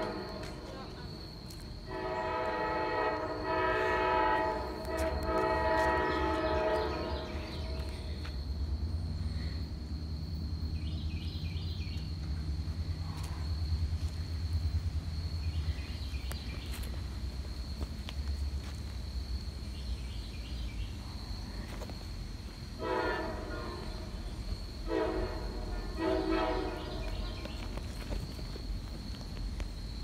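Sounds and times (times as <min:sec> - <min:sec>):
locomotive horn blasts: 0:00.0 - 0:00.8, 0:01.9 - 0:08.0, 0:22.8 - 0:24.2, 0:24.8 - 0:27.5.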